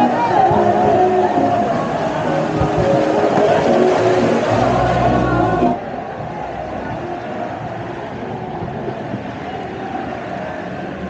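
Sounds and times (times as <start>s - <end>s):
music playing: 0.0s - 8.3s
steady rushing noise: 0.0s - 11.0s.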